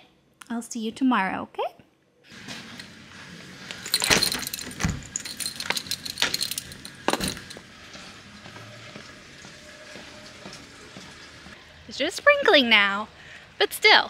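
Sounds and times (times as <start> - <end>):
keys jangling: 3.7 - 7.6.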